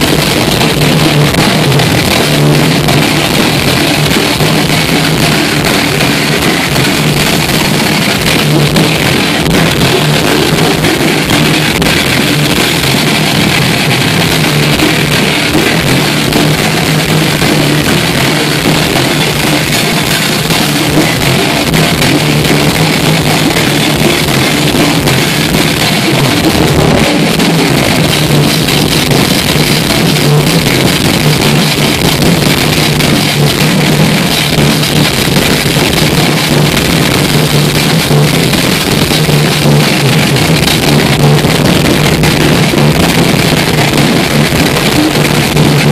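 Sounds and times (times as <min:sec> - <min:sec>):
bass guitar: 0:00.0 - 0:45.9
distorted electric guitars: 0:00.0 - 0:45.9
drums: 0:00.0 - 0:45.9.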